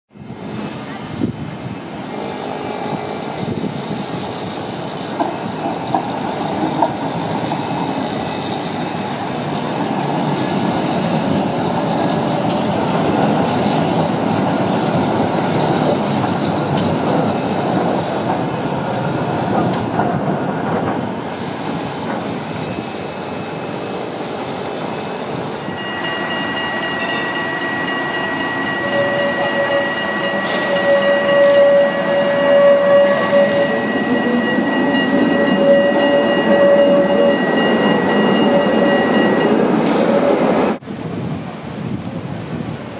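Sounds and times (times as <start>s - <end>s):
tram wheels rumbling on rail: 0.1s - 42.9s
high-pitched wheel squeal: 21.2s - 40.4s.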